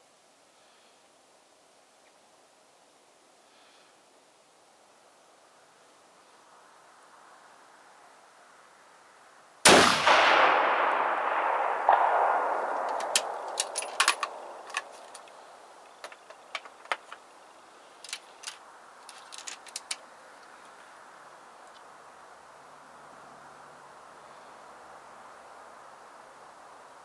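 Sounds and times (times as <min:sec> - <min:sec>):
rifle shot with echo: 0:09.6 - 0:15.0
rifle bolt clicks: 0:11.9 - 0:15.4.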